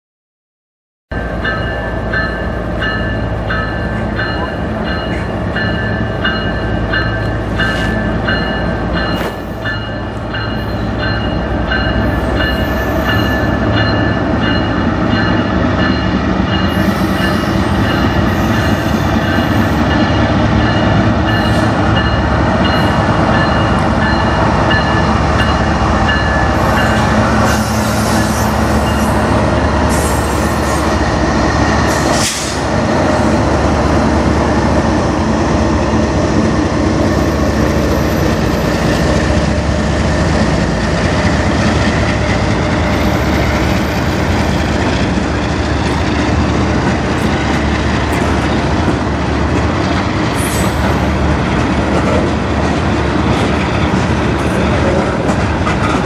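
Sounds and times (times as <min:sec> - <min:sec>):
crossing bell ringing: 0:01.1 - 0:27.3
diesel locomotives passing: 0:01.1 - 0:56.0
freight cars rumbling over rails: 0:01.1 - 0:56.0.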